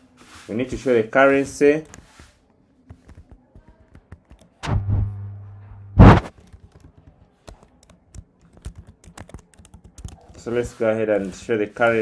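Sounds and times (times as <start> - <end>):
computer keyboard clicks: 2.9 - 4.6, 6.3 - 10.4
loud thump: 4.6 - 6.3
low steady hum: 4.6 - 6.3.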